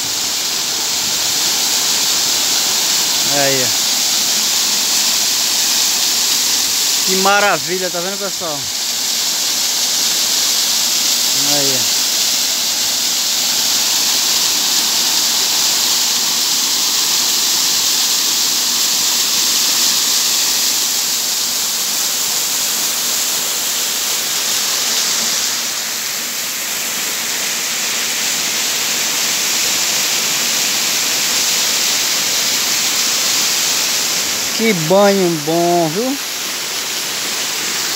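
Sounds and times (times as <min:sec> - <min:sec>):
waterfall over rocks: 0:00.0 - 0:37.9.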